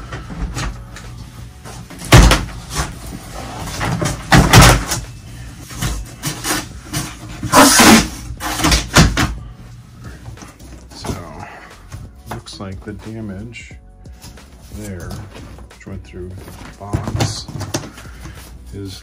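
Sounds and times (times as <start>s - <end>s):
cardboard scraping and rustling: 1.8s - 9.2s, 14.4s - 19.0s.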